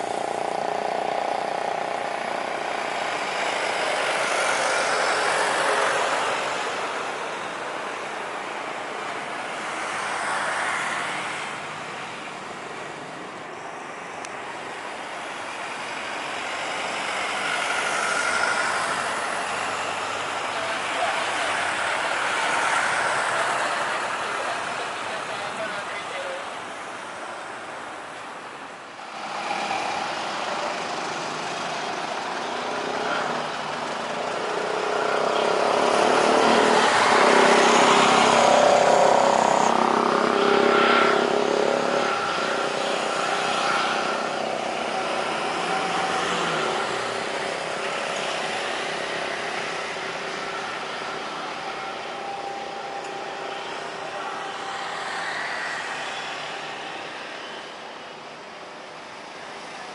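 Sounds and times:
jet engines of rolling airliner: 28.8 - 59.9.

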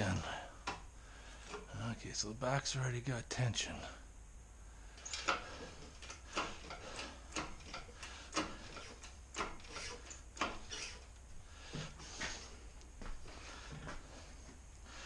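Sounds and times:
hydraulic hoist pump clicking: 5.0 - 11.0.

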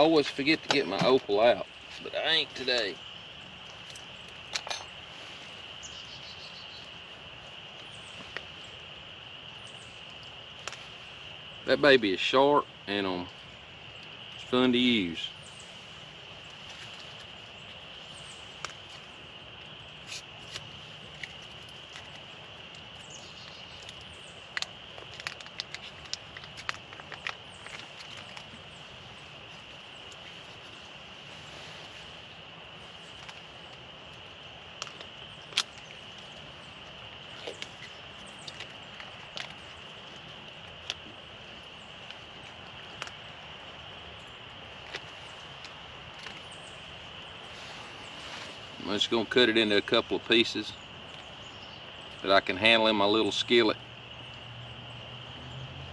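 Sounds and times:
steady hiss: 0.0 - 54.5.

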